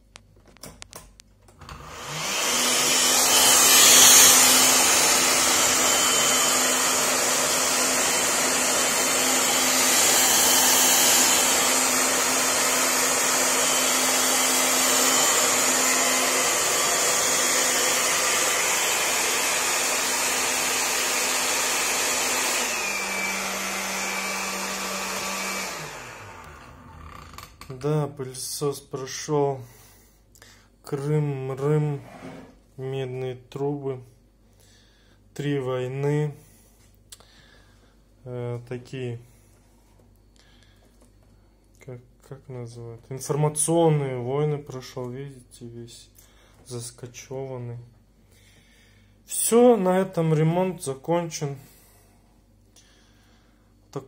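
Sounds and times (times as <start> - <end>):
stick vacuum whining: 1.6 - 27.8.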